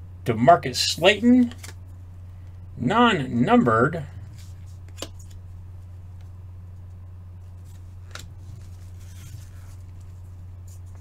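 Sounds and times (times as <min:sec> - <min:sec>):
steady low hum: 0:00.0 - 0:11.0
card clicks: 0:01.4 - 0:01.8, 0:04.9 - 0:05.4
card stock rustling: 0:07.6 - 0:11.0.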